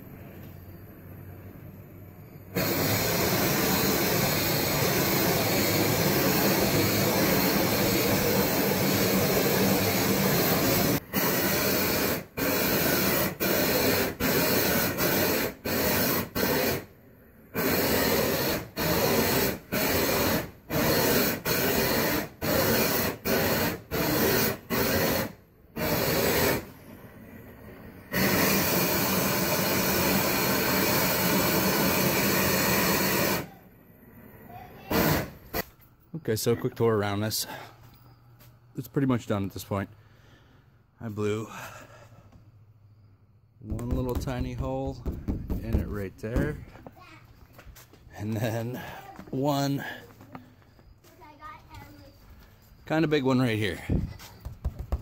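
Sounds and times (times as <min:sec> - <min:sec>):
torch burning with rushing hiss: 0:02.5 - 0:33.6, 0:34.5 - 0:35.7.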